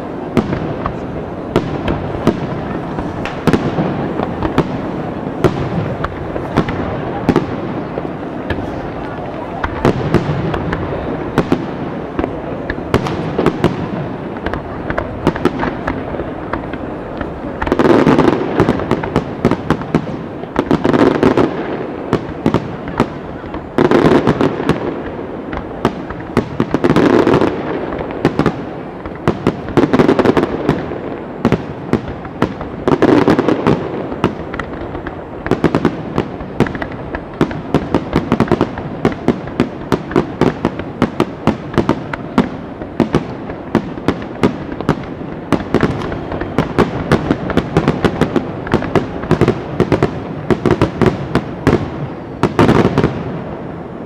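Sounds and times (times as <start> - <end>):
fireworks bangs and crackles: 0.0 - 54.0.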